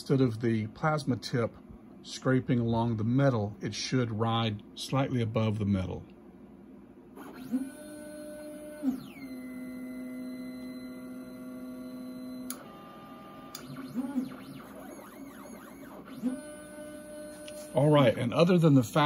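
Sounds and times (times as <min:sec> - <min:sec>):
stepper motors whining: 0:07.2 - 0:17.8.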